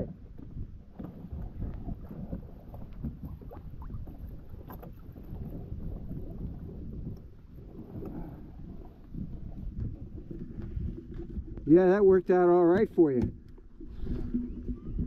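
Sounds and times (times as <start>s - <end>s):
water splashing against kayak hull: 0.0s - 15.0s
wind rumble on microphone: 0.0s - 15.0s
light knocks on hull: 12.7s - 13.6s.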